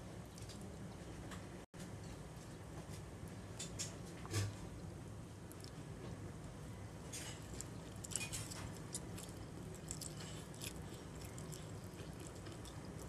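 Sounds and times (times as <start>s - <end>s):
steady low hum: 0.0s - 13.0s
person chewing noodles: 5.4s - 5.9s, 7.2s - 13.0s.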